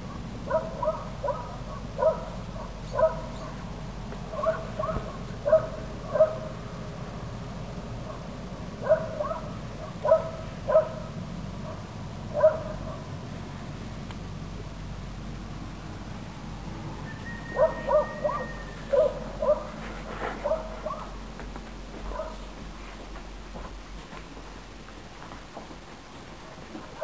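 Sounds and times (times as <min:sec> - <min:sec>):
peacock calling: 0:17.0 - 0:19.8.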